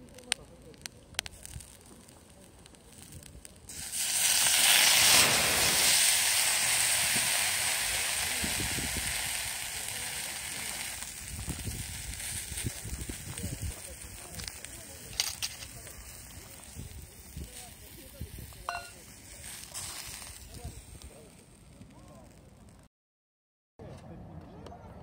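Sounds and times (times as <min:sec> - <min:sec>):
loud sizzle: 0:00.0 - 0:22.6
liquid poured onto hot griddle: 0:02.9 - 0:21.2.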